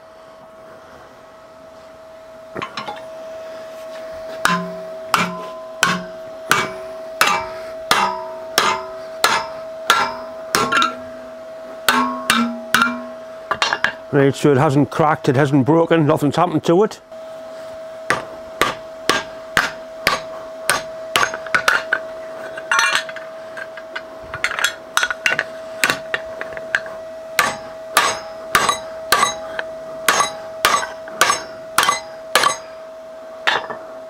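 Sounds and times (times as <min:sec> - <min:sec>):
hammer blows on metal: 0:04.2 - 0:11.2, 0:11.8 - 0:14.1, 0:18.0 - 0:32.8.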